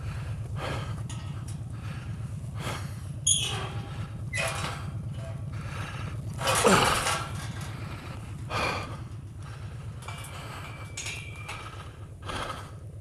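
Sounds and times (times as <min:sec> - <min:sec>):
metal gate rattling and creaking: 0:00.0 - 0:12.8
motorcycle engine idling: 0:00.0 - 0:13.0
gate squeal: 0:03.2 - 0:05.6, 0:10.1 - 0:11.8.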